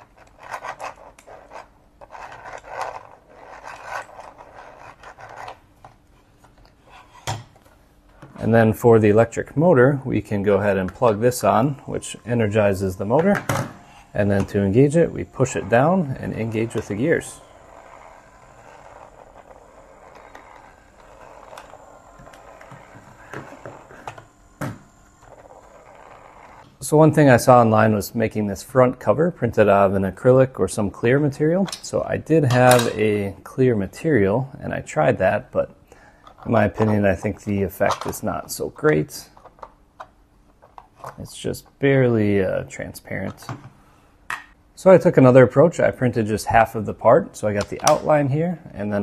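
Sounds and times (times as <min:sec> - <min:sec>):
plastic gears rasping and clicking: 0:15.4 - 0:26.7.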